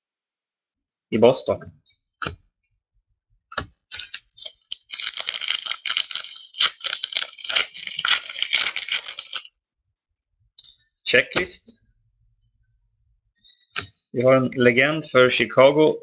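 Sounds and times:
wrapper tearing and crinkling: 3.9s - 9.5s.

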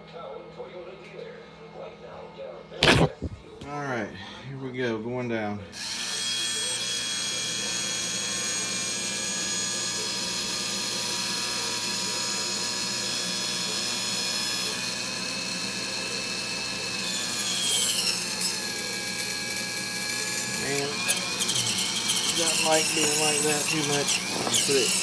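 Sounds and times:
electric motor and hydraulic pump whine: 5.8s - 25.0s.

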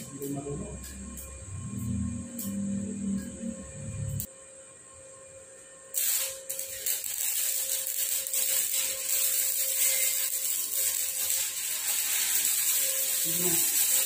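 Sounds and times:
welding arc crackling hiss: 0.0s - 2.7s, 5.9s - 14.0s.

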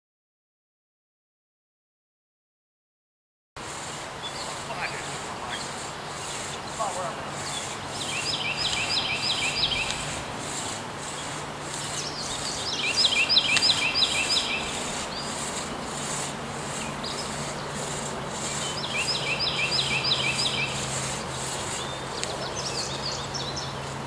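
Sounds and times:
faint pulsing high hiss: 3.6s - 24.0s
songbird singing: 3.6s - 24.0s
steady low hum: 3.6s - 24.0s.

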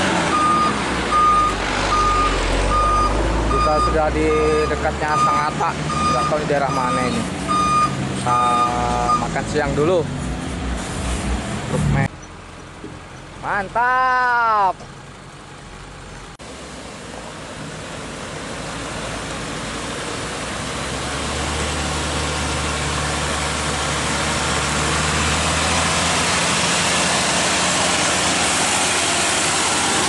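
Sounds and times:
truck diesel engine running: 14.8s - 30.0s.

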